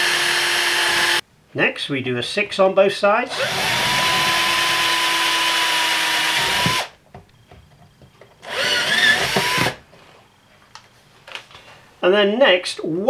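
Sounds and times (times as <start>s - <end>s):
electric drill whining: 0.0s - 1.2s, 3.3s - 7.0s, 8.4s - 9.8s.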